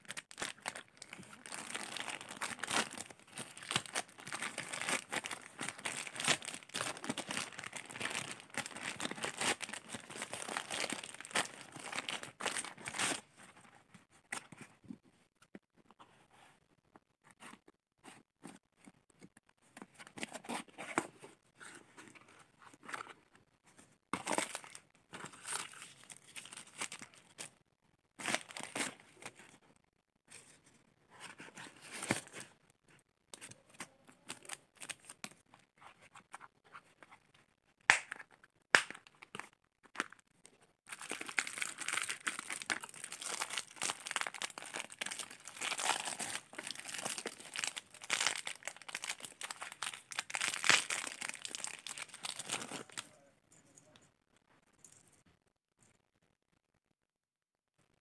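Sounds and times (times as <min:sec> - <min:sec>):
plastic packets crinkling: 0:00.0 - 0:13.2, 0:28.2 - 0:29.0, 0:40.9 - 0:53.0
paper crumpling and tearing: 0:00.0 - 0:13.3.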